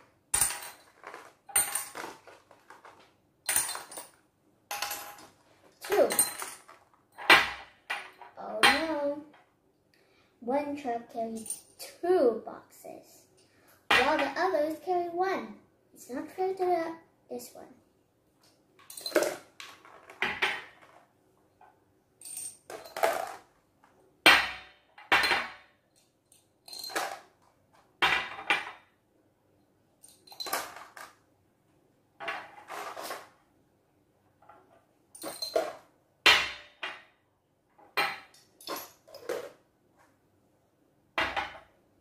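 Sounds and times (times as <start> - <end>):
glass jars clinking: 35.2 - 35.8.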